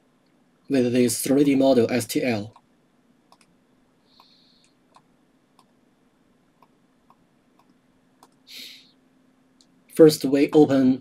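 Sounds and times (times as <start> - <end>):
computer mouse clicks: 3.3 - 3.6, 4.2 - 5.8, 6.6 - 8.4.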